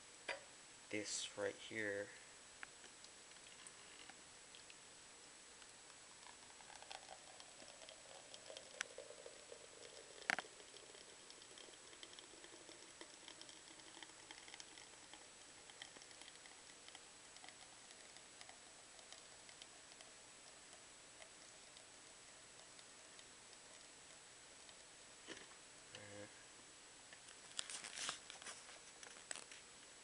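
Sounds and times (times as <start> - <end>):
liquid trickling into plastic cup: 6.2 - 20.1.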